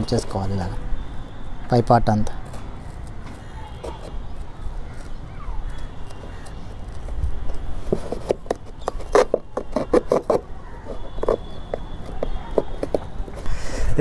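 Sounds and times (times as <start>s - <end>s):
knife piercing paperboard carton: 7.9s - 11.5s.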